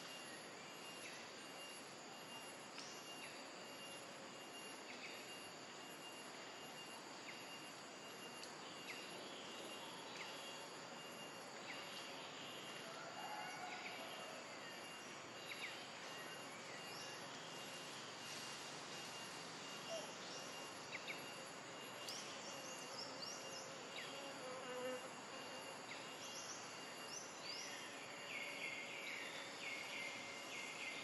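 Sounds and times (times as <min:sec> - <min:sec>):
high insect tone: 0:00.0 - 0:31.0
steady hiss: 0:14.7 - 0:24.2.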